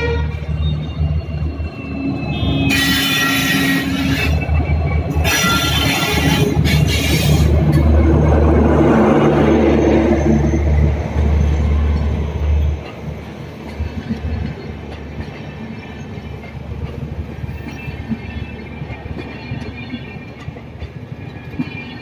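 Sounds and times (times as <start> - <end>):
train wheels rumbling on rails: 0.0 - 22.0
shrill high-pitched horn: 2.0 - 4.5.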